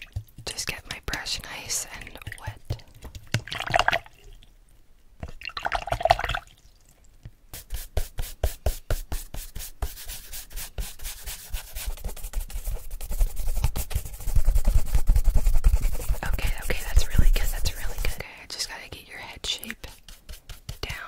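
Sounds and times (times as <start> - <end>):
brush bristles scratching: 7.5 - 18.2, 19.6 - 21.0.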